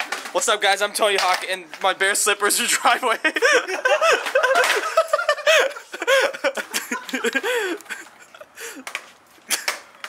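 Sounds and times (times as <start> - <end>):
people laughing and giggling: 2.6 - 9.9.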